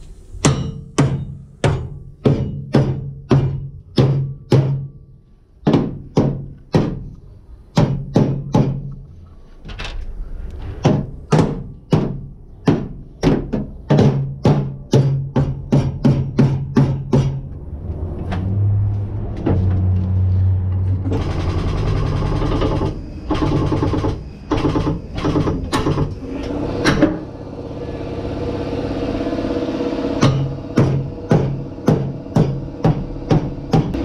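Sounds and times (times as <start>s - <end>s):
hammer striking sheet metal: 0.4s - 9.0s, 10.6s - 17.6s, 30.0s - 34.0s
mechanical running noise: 20.9s - 34.0s.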